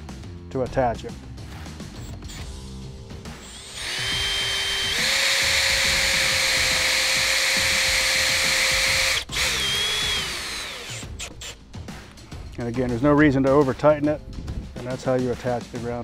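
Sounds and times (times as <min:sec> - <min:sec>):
cordless drill motor whine: 0:03.3 - 0:11.4.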